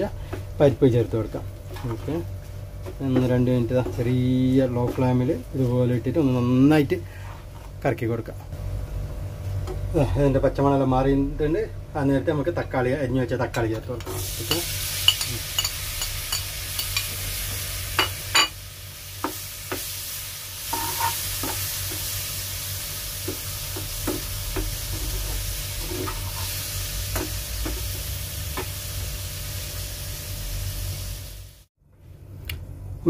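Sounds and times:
spatula stirring and scraping: 0:01.6 - 0:06.5, 0:20.7 - 0:22.1, 0:23.3 - 0:27.9
tomatoes sizzling in oil: 0:14.0 - 0:31.7.

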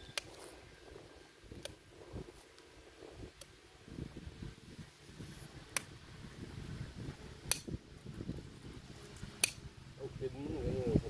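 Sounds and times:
hoof nippers snapping: 0:07.5 - 0:07.8, 0:09.2 - 0:09.6.

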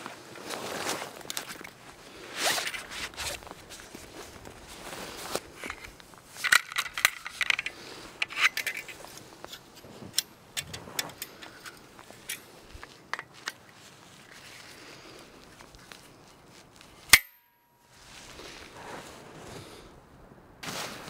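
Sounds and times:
folding saw clinking and clicking: 0:05.6 - 0:12.6.

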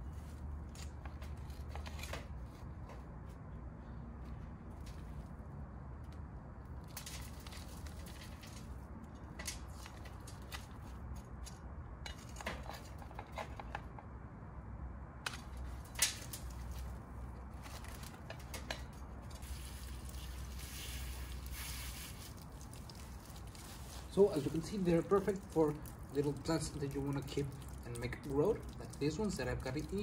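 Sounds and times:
hands rustling potting soil: 0:15.4 - 0:30.0.

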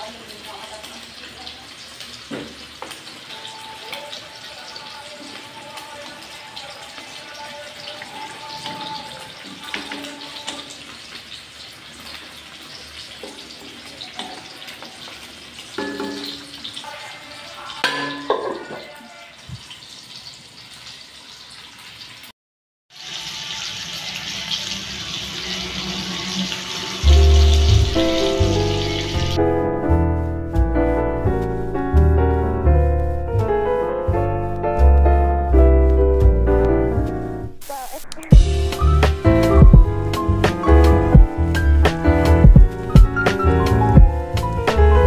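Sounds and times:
sausages sizzling in oil: 0:00.0 - 0:22.3, 0:22.9 - 0:30.7, 0:37.6 - 0:45.0
music: 0:03.2 - 0:11.0, 0:24.5 - 0:45.0.

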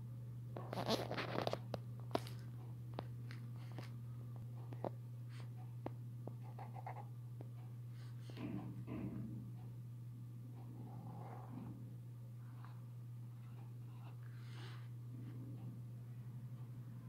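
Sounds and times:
low electrical hum: 0:00.0 - 0:17.0
pen scratching on paper: 0:06.4 - 0:07.1.

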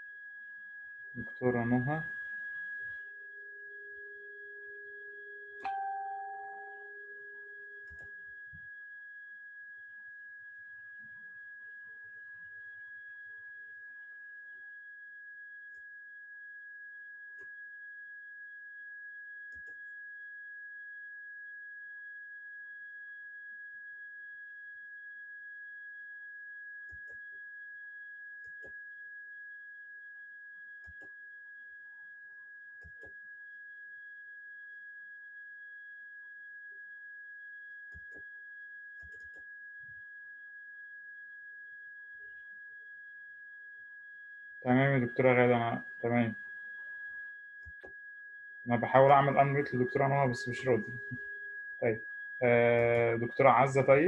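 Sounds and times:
fainter higher tone: 0:05.6 - 0:07.0, 0:48.7 - 0:54.0
high-pitched pure tone: 0:48.7 - 0:51.2, 0:51.8 - 0:54.0.

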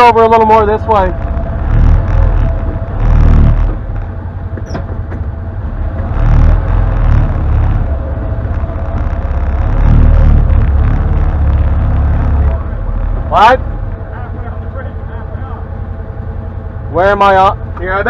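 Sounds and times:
utility vehicle engine running: 0:00.0 - 0:18.0.

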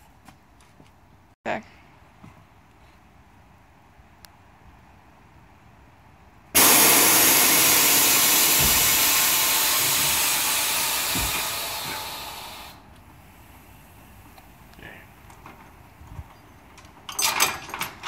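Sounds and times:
air suspension hissing: 0:06.6 - 0:14.0
dull knocks: 0:11.0 - 0:12.1.

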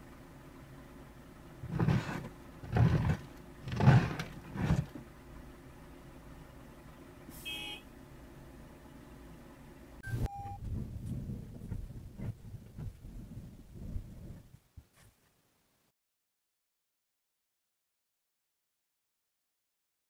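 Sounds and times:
short electronic beep: 0:10.0 - 0:10.6.

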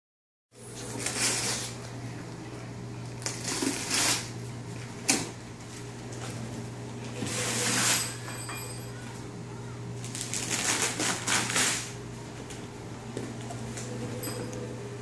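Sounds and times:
wrapping paper rustling and tearing: 0:03.2 - 0:04.3, 0:10.0 - 0:12.0
steady low hum: 0:11.8 - 0:15.0.

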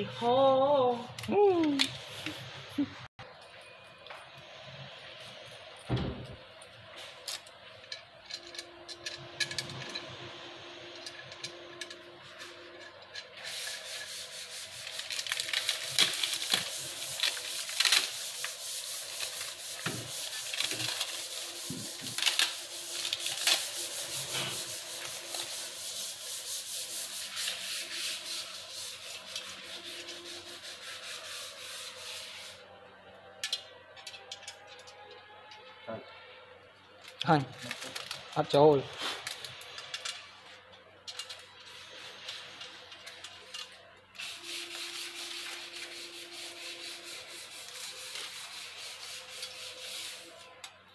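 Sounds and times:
scraping strokes on wooden door: 0:08.5 - 0:32.7, 0:41.4 - 0:50.6.

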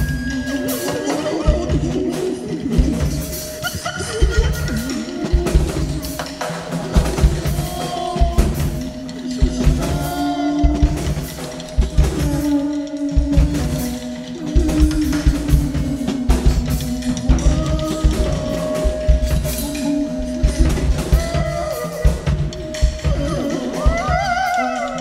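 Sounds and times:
drum kit beat: 0:00.0 - 0:25.0
wavering harmonica notes: 0:00.0 - 0:25.0.

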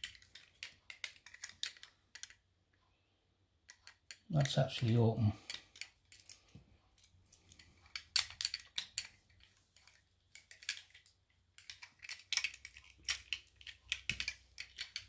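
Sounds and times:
padlock clicks and rattles: 0:00.0 - 0:02.4, 0:07.4 - 0:15.0.

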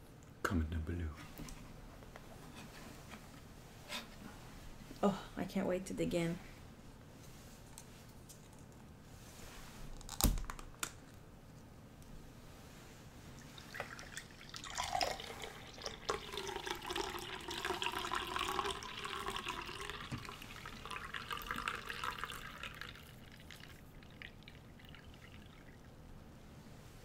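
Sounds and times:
liquid pouring into a glass: 0:13.4 - 0:26.0.

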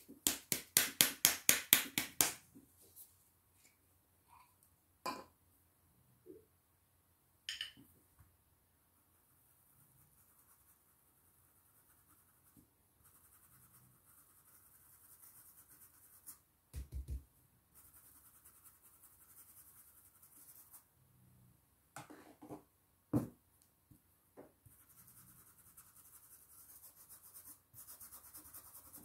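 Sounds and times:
stencil brush scratching on fabric: 0:09.0 - 0:16.4, 0:17.7 - 0:20.9, 0:24.7 - 0:29.0.

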